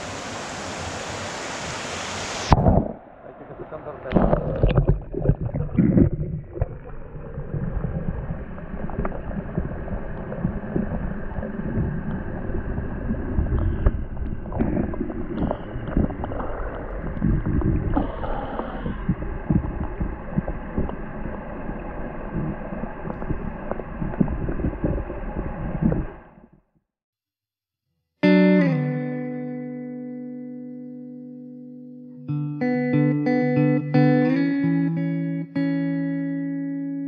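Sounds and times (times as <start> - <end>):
muffled underwater stream gurgle: 2.4 - 26.6.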